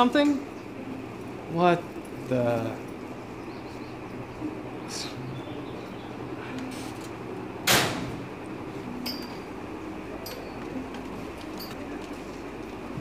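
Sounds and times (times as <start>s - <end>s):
steady low hum: 0.0s - 13.0s
metal locker door shutting: 7.6s - 8.3s.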